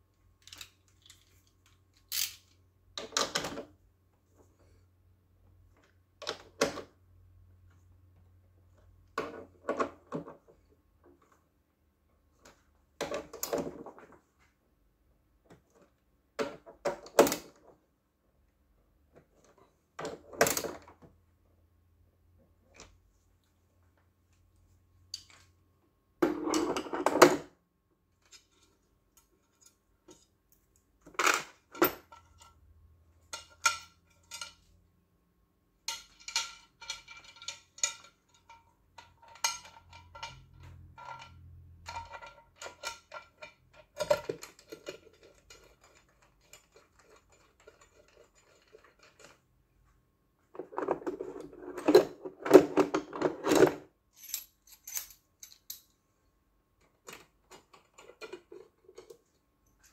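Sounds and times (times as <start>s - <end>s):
metal parts rattling: 0.4s - 2.6s, 33.3s - 34.7s, 35.9s - 49.4s, 50.8s - 55.9s
metal tools clinking: 33.3s - 34.7s, 35.9s - 49.4s, 54.1s - 55.9s.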